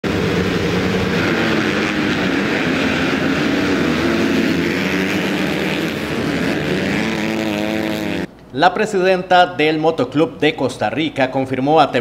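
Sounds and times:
motocross bikes revving: 0:00.0 - 0:08.3.

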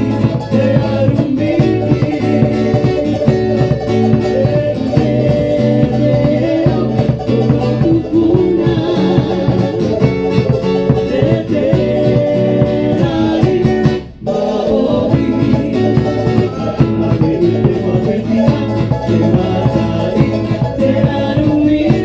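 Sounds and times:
large drum: 0:00.0 - 0:22.0
strummed acoustic guitar: 0:00.0 - 0:22.0
strummed ukulele: 0:00.0 - 0:22.0
woman singing: 0:04.3 - 0:10.0.

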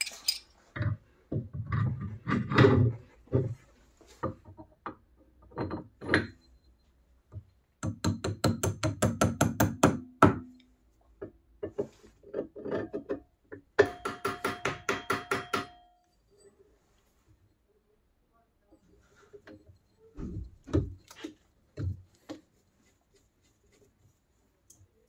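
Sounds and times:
hammer tapping on metal drift: 0:13.8 - 0:15.9.

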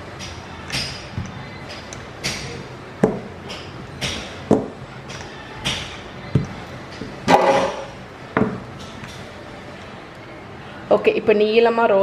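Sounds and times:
rolling pin knocking: 0:00.2 - 0:09.0.

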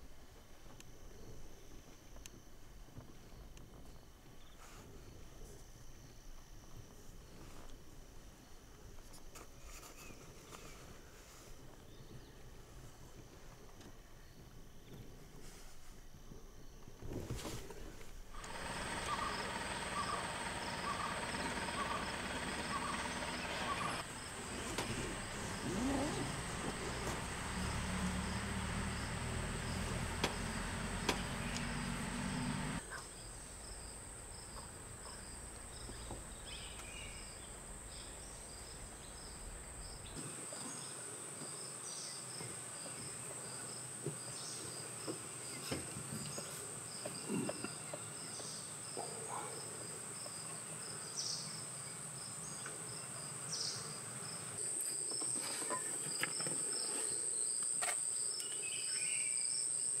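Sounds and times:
insect chirping in a pulse: 0:18.3 - 0:40.9.

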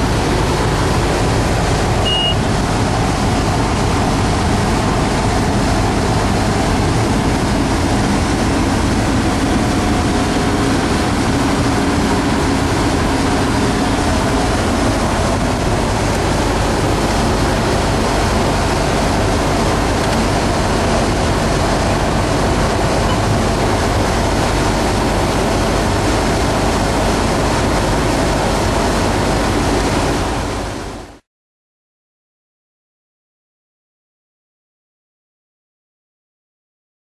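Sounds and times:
low hum: 0:00.0 - 0:27.6
diesel engine running: 0:00.0 - 0:31.2.

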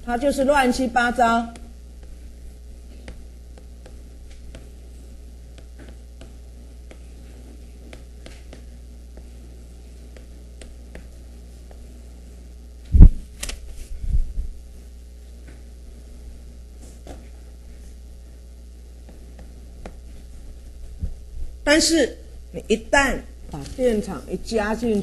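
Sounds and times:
low electrical hum: 0:00.0 - 0:25.0
writing on board ticks: 0:03.0 - 0:04.7.

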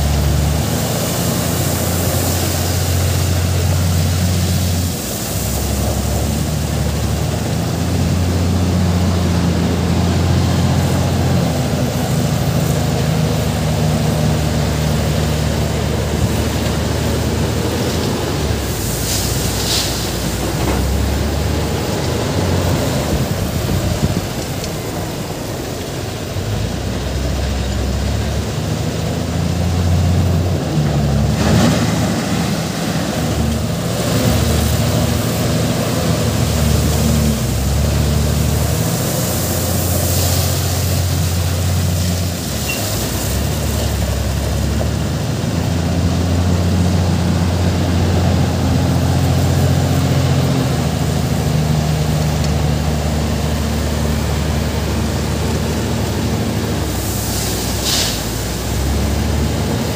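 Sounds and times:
wheel loader diesel engine under load: 0:00.0 - 0:59.9
brief hiss: 0:18.8 - 0:20.5, 0:56.8 - 0:58.7.

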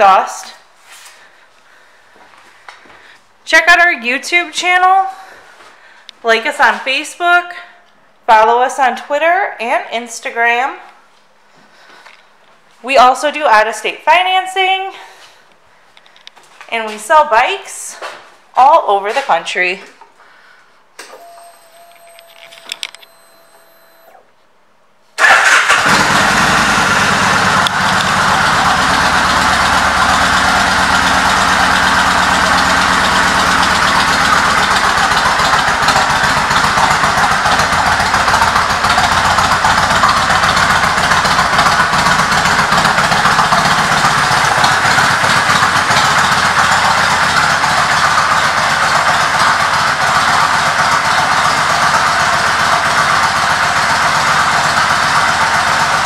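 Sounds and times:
motorcycle engine starting and idling: 0:21.0 - 0:24.3, 0:25.2 - 0:56.0.

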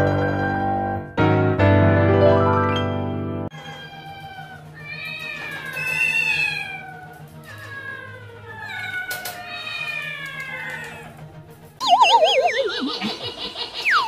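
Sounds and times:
cats yowling: 0:03.5 - 0:11.2.

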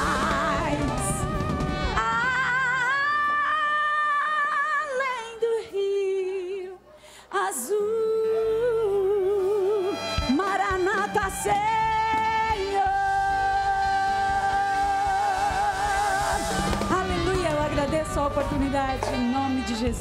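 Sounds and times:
woman singing a hymn: 0:00.0 - 0:20.0
soft musical accompaniment: 0:07.9 - 0:20.0.

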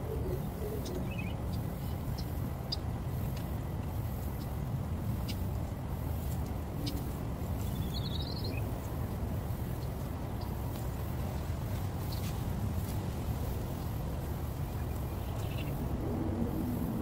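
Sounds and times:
bird chirp: 0:00.0 - 0:03.4, 0:06.8 - 0:08.7, 0:14.7 - 0:15.8
low outdoor rumble: 0:00.0 - 0:17.0.

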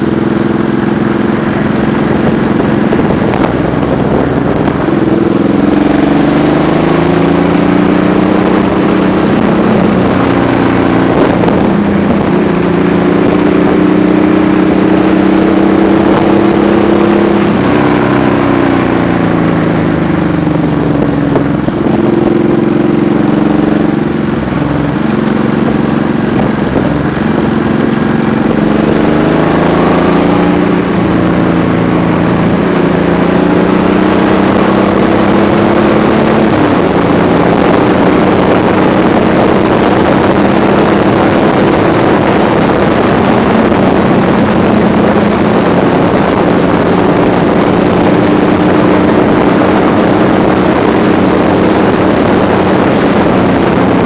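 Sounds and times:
motorcycle engine running: 0:00.0 - 0:54.0
wind rush on microphone: 0:00.0 - 0:54.0.

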